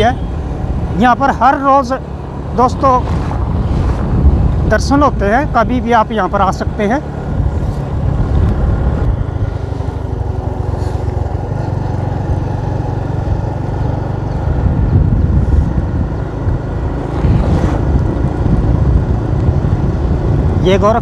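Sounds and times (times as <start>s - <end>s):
wind buffeting microphone: 2.3s - 21.0s
motorcycle engine running: 6.6s - 21.0s.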